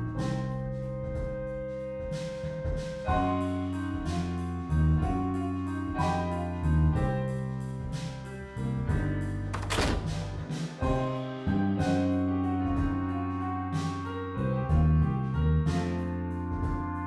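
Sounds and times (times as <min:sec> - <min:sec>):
slow keyboard music: 0:00.0 - 0:17.0.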